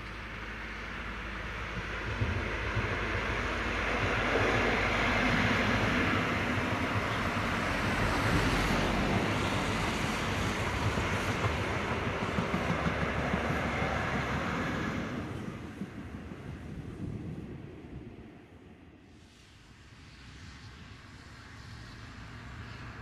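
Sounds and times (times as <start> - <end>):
rhythmic thumping of train wheels: 0.0 - 18.1
train wheels rushing on rail: 0.0 - 23.0.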